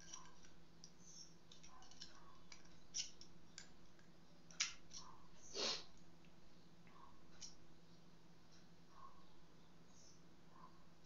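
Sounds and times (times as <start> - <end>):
small metal clicks: 0.0 - 5.1.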